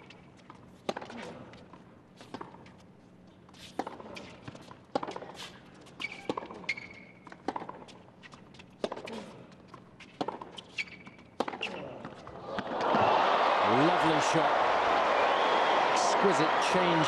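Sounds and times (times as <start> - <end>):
tennis ball bouncing: 0.5 - 1.2, 3.7 - 9.1, 9.7 - 13.0
shoe squeaks: 2.2 - 8.7, 10.0 - 12.0
racquet striking tennis ball: 11.4 - 11.9.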